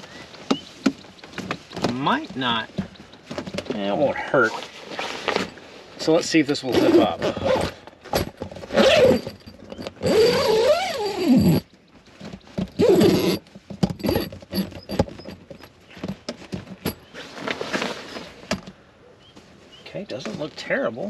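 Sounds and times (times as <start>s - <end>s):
scrapes and tugs: 0.0s - 18.8s
zipper being pulled: 6.7s - 11.6s, 12.8s - 13.4s, 14.0s - 15.4s.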